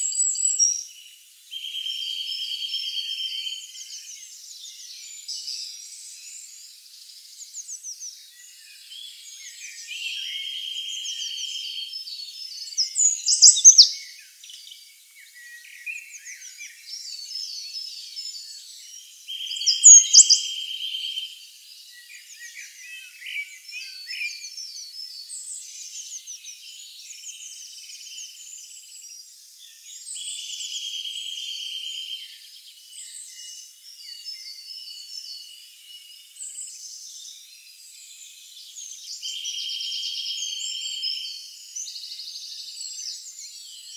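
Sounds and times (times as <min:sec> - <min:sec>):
songbirds chirping and singing: 0:00.0 - 0:43.9
sharp down-slurred bird whistles: 0:12.8 - 0:14.2, 0:19.3 - 0:21.2.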